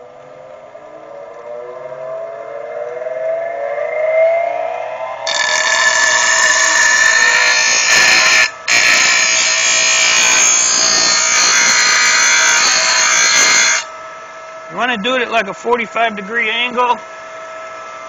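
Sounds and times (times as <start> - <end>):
grinder motor whine: 0.0 - 18.0
blade grinding on bench grinder: 5.2 - 13.9.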